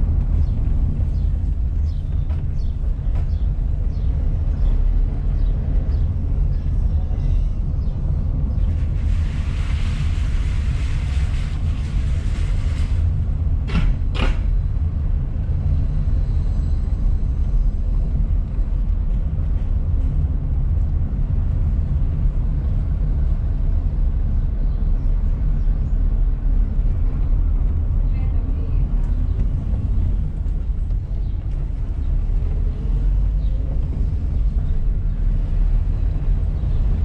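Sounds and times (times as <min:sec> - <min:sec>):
car engine and road rumble: 0:00.0 - 0:37.0
sharp knocks: 0:13.7 - 0:14.5.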